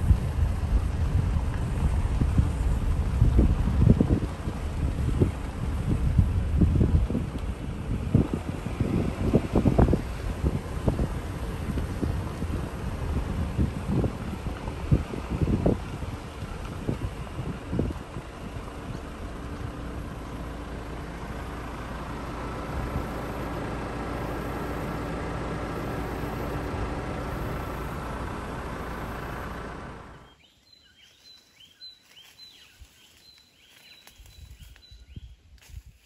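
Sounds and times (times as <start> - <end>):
rushing noise with low rumble: 0.0 - 30.4
birds chirping: 14.7 - 35.4.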